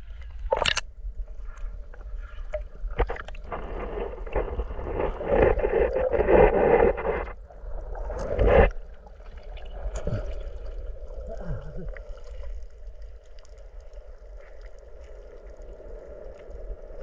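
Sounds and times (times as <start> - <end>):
muffled underwater rushing: 1.4 - 17.0.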